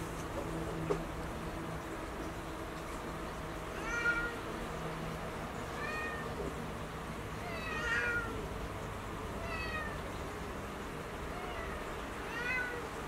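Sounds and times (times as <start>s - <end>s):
cat meowing: 3.8s - 4.4s, 5.8s - 6.4s, 7.4s - 8.4s, 9.4s - 10.0s, 11.3s - 12.9s.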